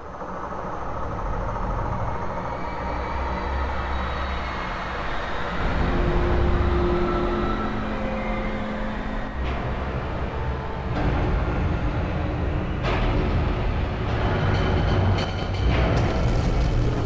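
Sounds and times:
deep continuous rumble: 5.6s - 17.0s.

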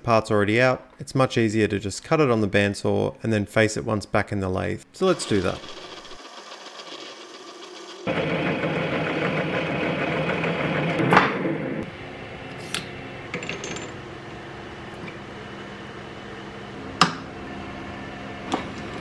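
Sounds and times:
metal lathe running: 5.1s - 11.0s
file against spinning steel: 5.2s - 8.1s.

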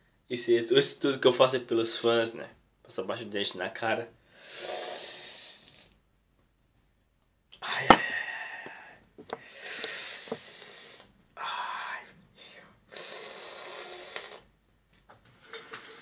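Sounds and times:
man hissing through teeth: 4.4s - 5.9s, 9.4s - 11.1s, 12.9s - 14.5s.

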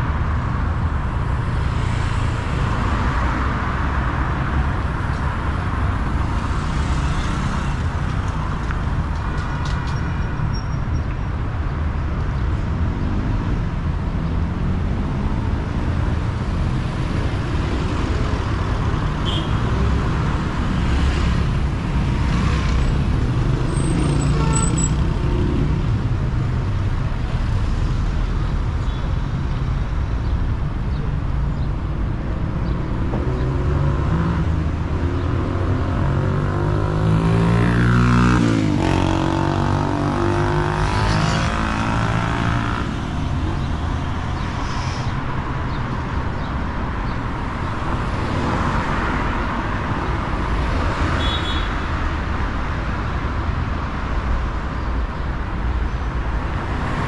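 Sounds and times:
cars driving past: 0.0s - 10.4s.

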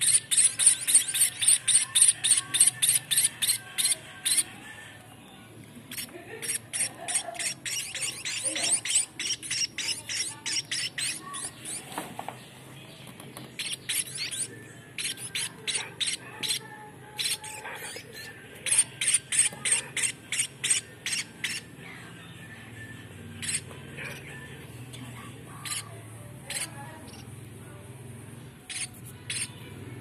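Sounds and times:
bird chicks begging calls: 0.0s - 4.7s, 5.9s - 12.0s, 13.5s - 21.7s, 23.4s - 24.4s, 25.5s - 27.3s, 28.7s - 29.6s.

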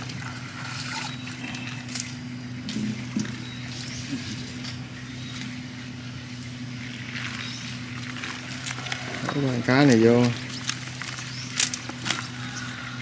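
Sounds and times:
low motor hum: 0.0s - 13.0s
mesh net rustling: 7.2s - 12.6s.

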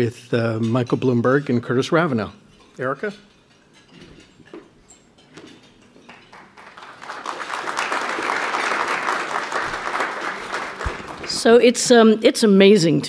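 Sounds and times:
audience applauding: 6.1s - 11.5s.

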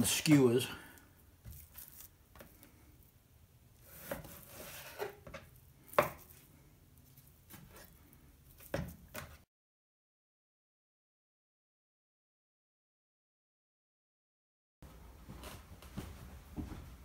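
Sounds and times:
knife slicing raw meat: 3.8s - 5.2s.

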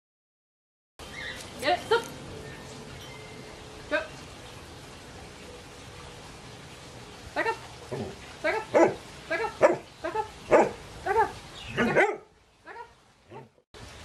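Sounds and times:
dog barking: 8.7s - 9.0s, 9.6s - 9.9s, 10.5s - 12.3s.

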